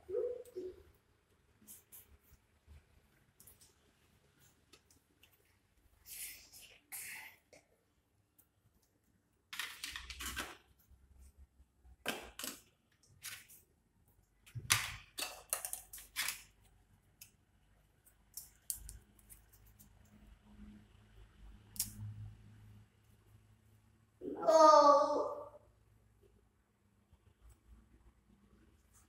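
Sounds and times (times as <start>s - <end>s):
objects clicking and scraping: 9.5s - 10.9s, 14.5s - 17.4s.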